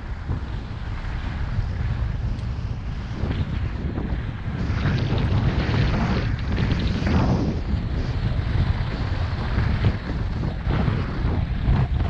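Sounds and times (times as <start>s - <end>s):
wind rumbling on microphone: 0.0s - 12.0s
skis carving on snow: 4.6s - 12.0s.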